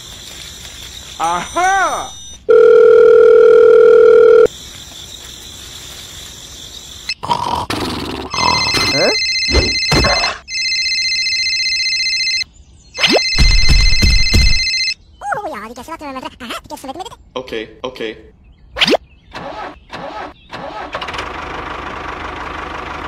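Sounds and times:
electronic phone ringtone: 0:02.1 - 0:04.5, 0:08.4 - 0:15.0
dial tone: 0:02.5 - 0:04.5.

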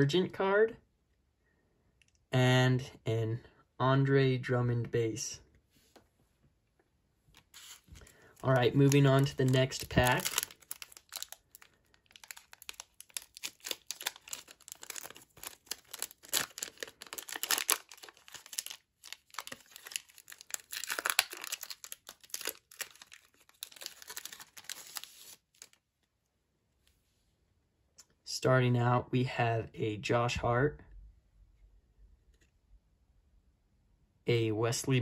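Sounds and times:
foil wrapper crinkling and tearing: 0:07.4 - 0:25.8.

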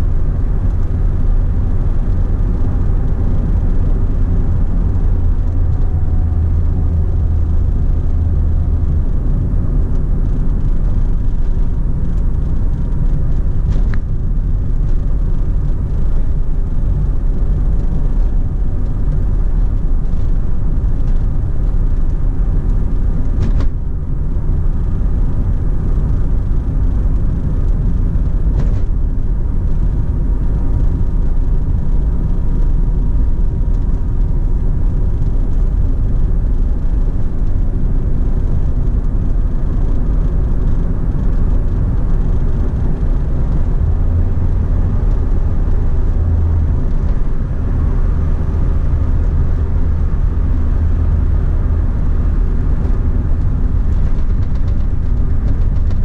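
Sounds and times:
engine and tyre rumble: 0:00.0 - 0:56.0.

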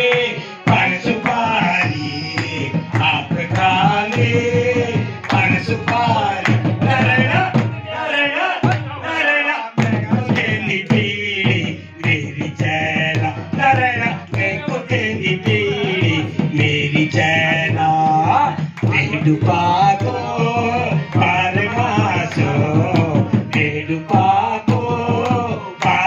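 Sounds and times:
drum beat: 0:00.0 - 0:07.8, 0:08.6 - 0:26.0
harmonium: 0:00.0 - 0:26.0
men singing: 0:00.0 - 0:26.0
hand-clapping: 0:00.1 - 0:04.4, 0:05.2 - 0:06.7, 0:18.8 - 0:19.0, 0:25.2 - 0:26.0.

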